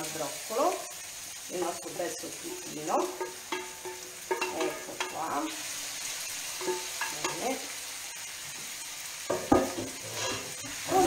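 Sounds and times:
food sizzling in oil: 0.0s - 11.0s
scraping in steel bowl: 10.0s - 10.6s.

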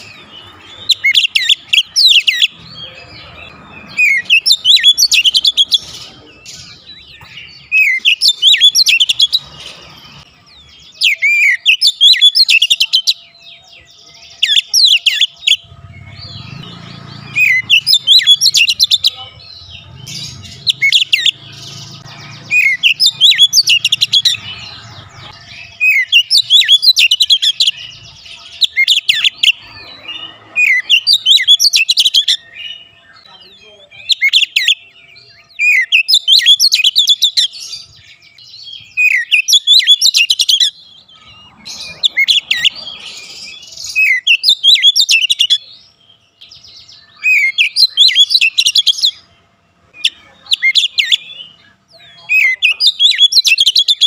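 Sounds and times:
bird singing whistled phrases: 6.7s - 9.4s, 10.8s - 13.2s, 38.6s - 40.8s, 46.8s - 49.2s, 50.0s - 54.0s.

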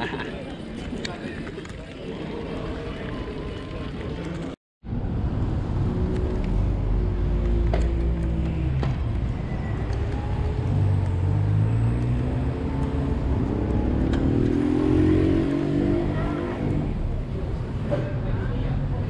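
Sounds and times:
traffic engines rumbling: 0.0s - 19.0s
engine speeding up: 4.9s - 17.5s.

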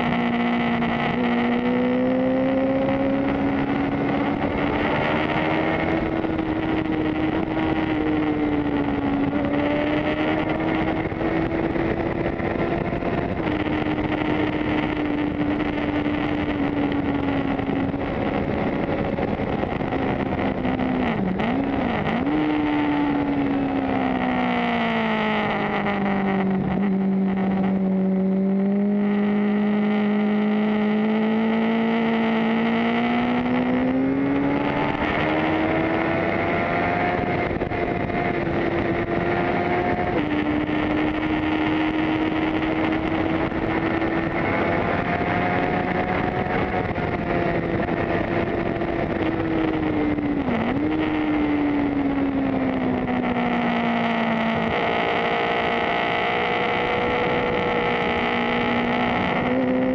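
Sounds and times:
motorcycle engine revving: 0.0s - 59.9s
wind rush: 0.0s - 59.9s.

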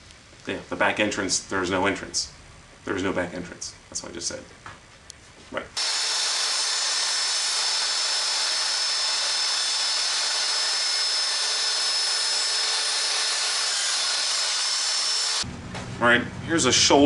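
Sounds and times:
table saw cutting wood: 5.8s - 15.4s.

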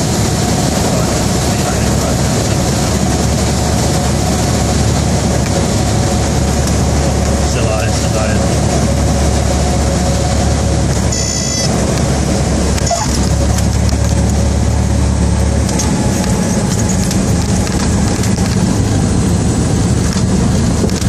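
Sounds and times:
air and rolling noise: 0.0s - 21.0s
plane engine idling: 0.0s - 21.0s.

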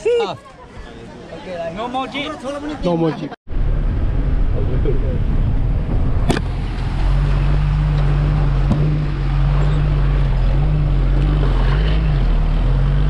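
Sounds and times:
bus engine humming: 3.5s - 13.0s
road rumble: 3.5s - 13.0s.

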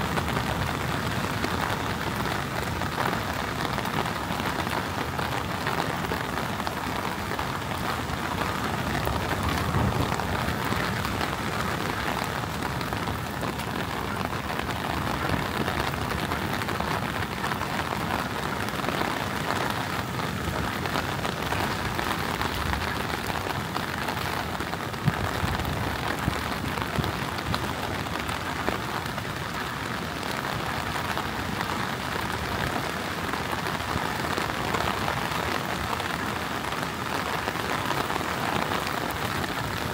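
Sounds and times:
heavy rain pattering: 0.0s - 39.9s.

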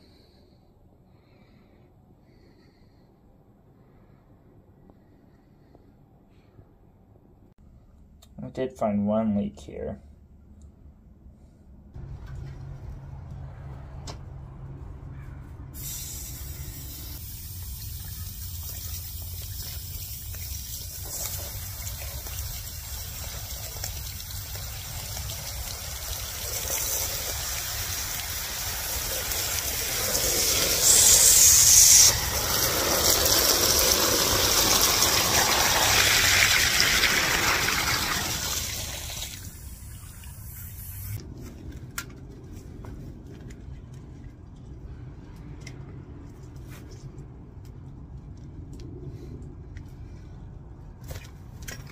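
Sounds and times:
water gushing and spraying: 15.8s - 41.2s.

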